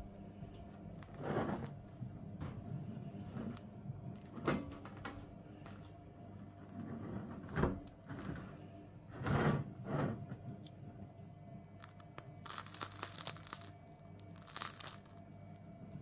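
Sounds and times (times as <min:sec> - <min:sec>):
bread crust scraping and crackling: 0:00.0 - 0:02.0, 0:11.7 - 0:15.2.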